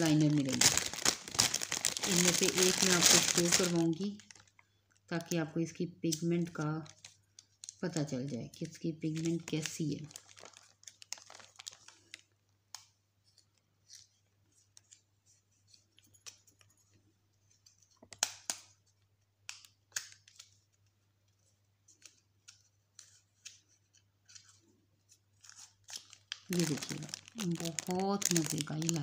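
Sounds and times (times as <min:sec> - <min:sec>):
plastic packaging clicks and rustles: 0:00.0 - 0:05.4, 0:06.1 - 0:29.0.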